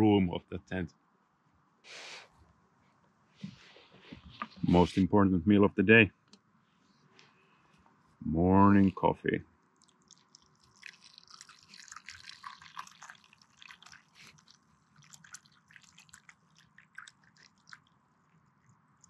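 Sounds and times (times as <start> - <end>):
coffee pouring into cup: 9.8 - 18.0.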